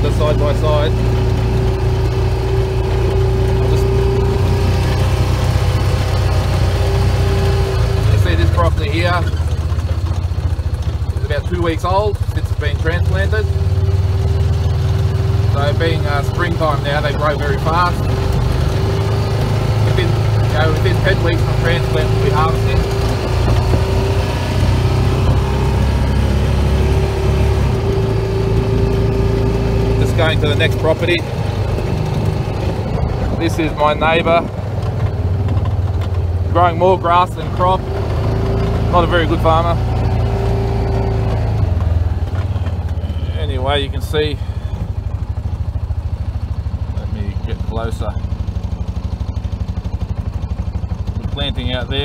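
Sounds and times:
vehicle engine running: 0:00.0 - 0:52.0
steady droning note: 0:11.2 - 0:34.8.

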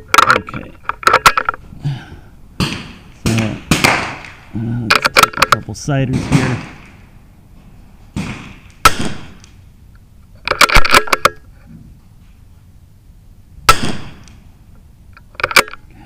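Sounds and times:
rifle shots: 0:02.6 - 0:04.5, 0:06.1 - 0:07.1, 0:08.2 - 0:09.6, 0:13.6 - 0:14.4.

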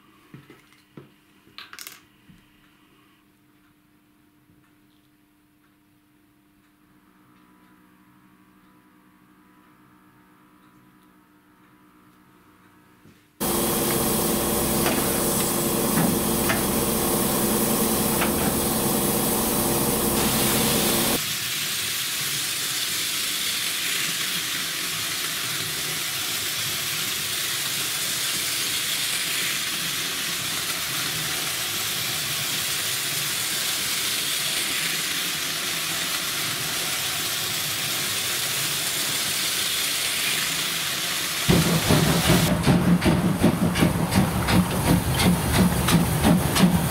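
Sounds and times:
humming tone: 0:13.4 - 0:21.2
steam locomotive hissing steam: 0:13.4 - 0:46.9.

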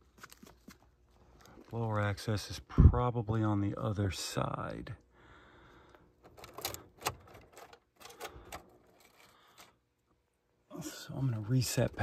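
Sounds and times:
faint clicks and rustles of handling: 0:00.0 - 0:02.6, 0:05.7 - 0:10.2.

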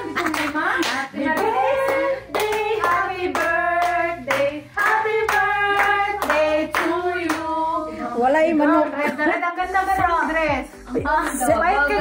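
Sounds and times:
hands clapping in a steady beat: 0:00.0 - 0:07.6, 0:11.2 - 0:11.5.

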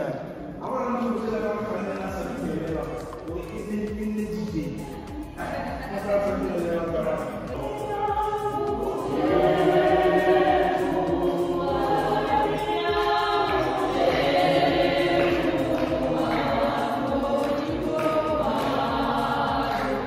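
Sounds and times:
choir singing in harmony: 0:04.7 - 0:20.0.

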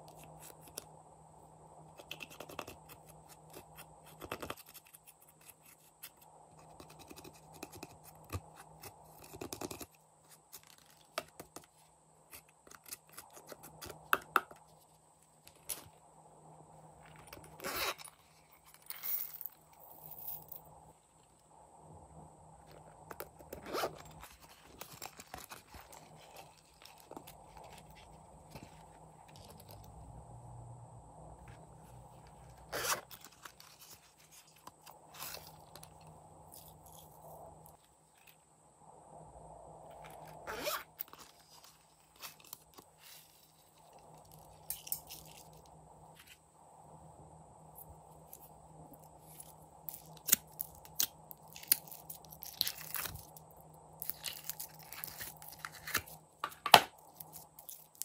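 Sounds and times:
pouch zipper pulled: 0:32.7 - 0:33.3, 0:40.4 - 0:41.2.

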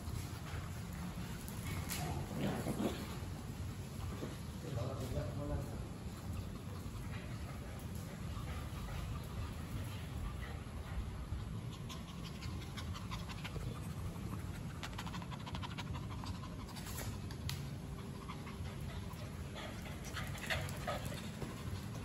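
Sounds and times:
puppies panting: 0:05.8 - 0:22.0.

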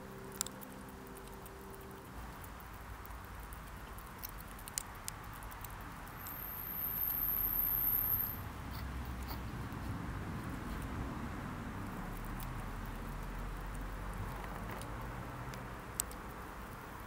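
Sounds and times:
thin high whine: 0:06.2 - 0:08.5.

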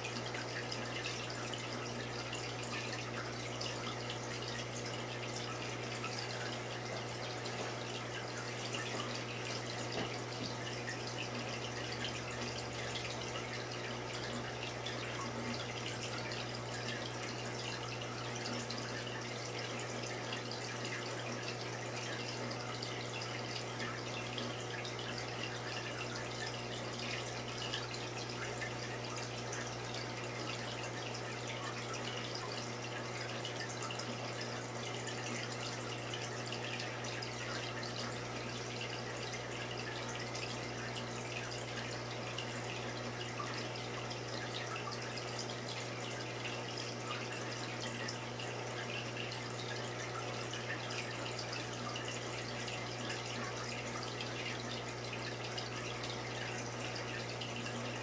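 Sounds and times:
water trickling and dripping: 0:00.0 - 0:58.0.

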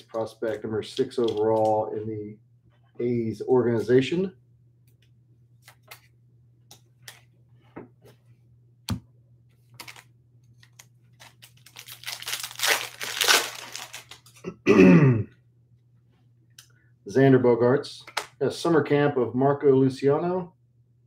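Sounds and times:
foil wrapper crinkling and tearing: 0:09.8 - 0:14.4.

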